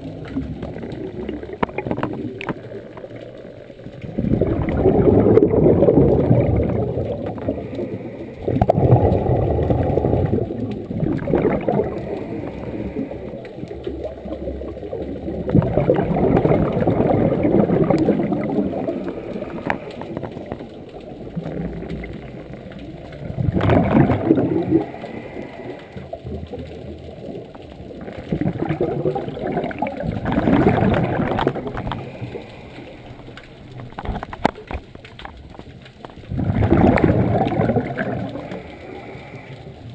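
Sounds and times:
exhaled bubbles bursting: 0.0 - 39.9
regulator breathing underwater: 11.8 - 13.4, 24.5 - 26.1, 38.4 - 39.9.

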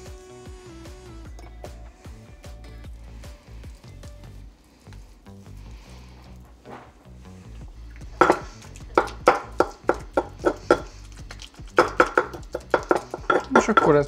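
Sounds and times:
background music: 0.0 - 14.0
pestle striking in a mortar: 8.2 - 10.9, 11.7 - 14.0.

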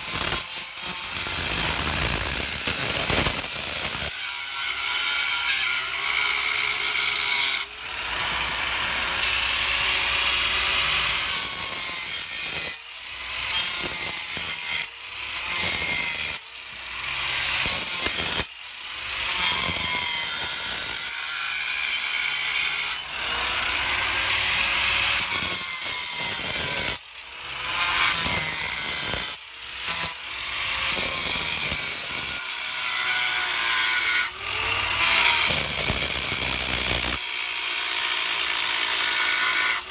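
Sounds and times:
angle grinder cutting stone: 0.0 - 39.9
grinder motor whine: 30.1 - 37.3.

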